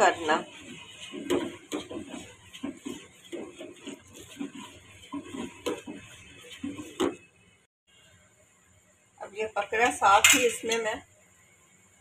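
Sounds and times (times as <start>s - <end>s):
metal spoon scraping saucepan: 0.0s - 7.3s.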